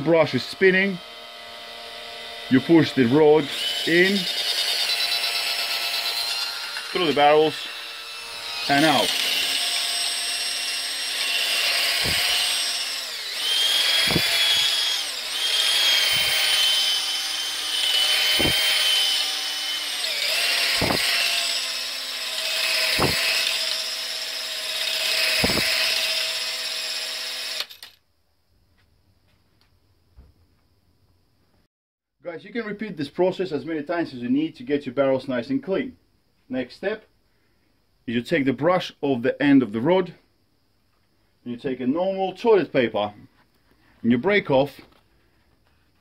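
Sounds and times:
drill motor whine: 0.0s - 28.0s.

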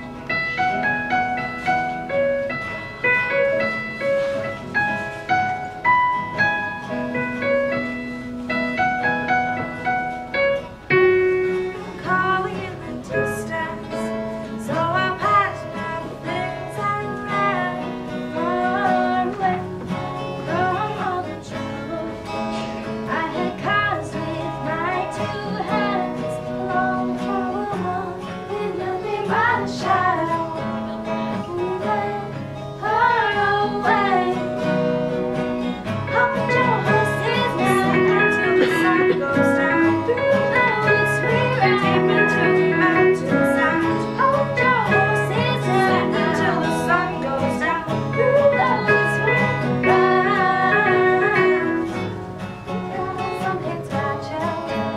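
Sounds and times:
acoustic guitars: 0.0s - 54.9s
stage keyboard: 0.0s - 54.9s
young woman singing: 11.6s - 35.0s, 36.0s - 52.1s, 52.8s - 54.9s.

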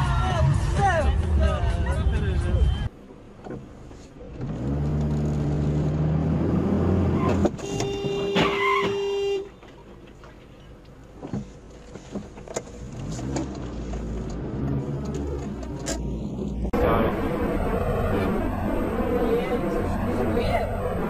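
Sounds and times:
car humming in traffic: 0.0s - 21.0s
car horn: 7.2s - 9.6s.

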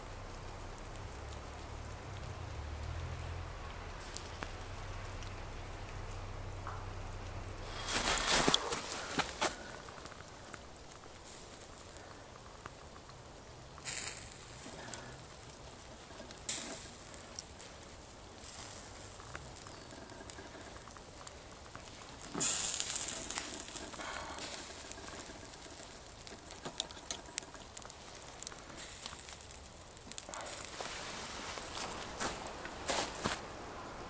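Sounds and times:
campfire crackling: 0.0s - 34.0s
steak sizzling on grill: 13.7s - 32.3s.

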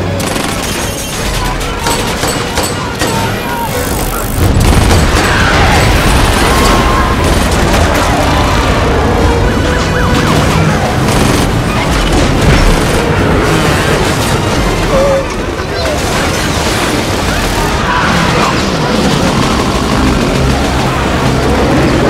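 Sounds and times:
action film music: 0.0s - 22.0s
gunfire: 0.1s - 14.6s.

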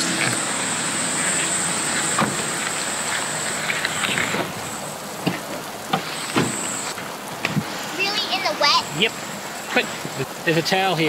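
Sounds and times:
high-pitched insect buzz: 0.0s - 4.9s
heavy rain falling: 0.0s - 11.0s.

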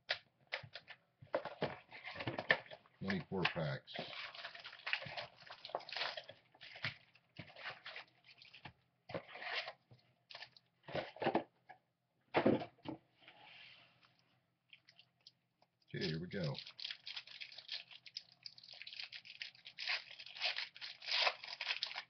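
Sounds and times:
card packaging crinkling: 16.0s - 22.0s.

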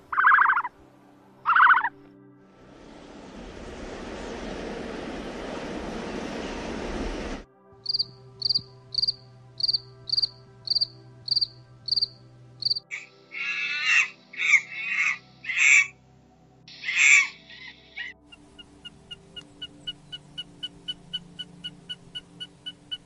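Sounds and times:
monkey calling: 0.0s - 0.7s, 1.5s - 1.9s, 13.0s - 15.9s, 16.7s - 18.1s
grasshopper chirping: 0.1s - 0.7s, 1.5s - 1.9s, 7.8s - 12.8s.

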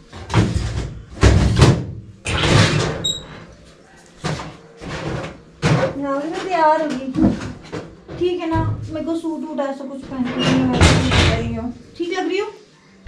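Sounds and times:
metal cupboard doors rattling: 10.0s - 11.8s.

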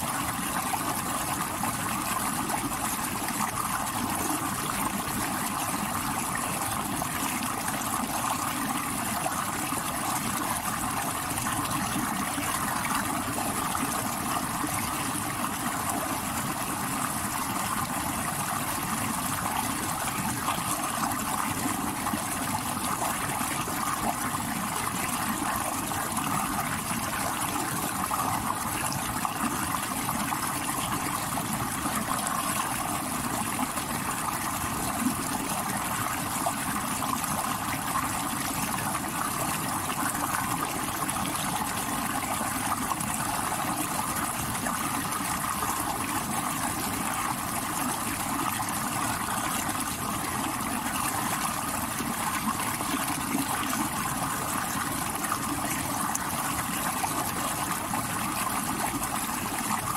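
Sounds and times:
stream water rushing over rocks: 0.0s - 59.9s.

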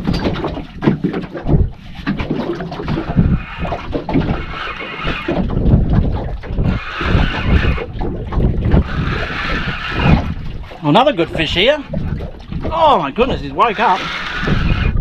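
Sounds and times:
water lapping against boat hull: 0.0s - 15.0s
wind buffeting microphone: 0.0s - 15.0s
fishing reel whirring: 2.9s - 10.7s, 13.2s - 15.0s.

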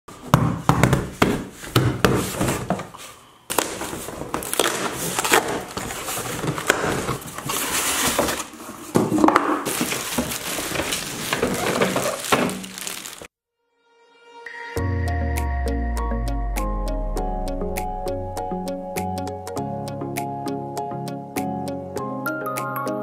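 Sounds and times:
cardboard scraping and rustling: 1.5s - 13.3s
plastic wrap crinkling: 3.5s - 13.3s.

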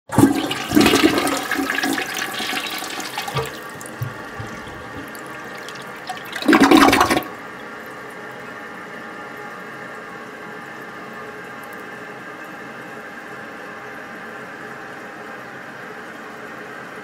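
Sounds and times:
toilet flushing: 0.1s - 8.1s
water hissing: 0.2s - 7.2s.

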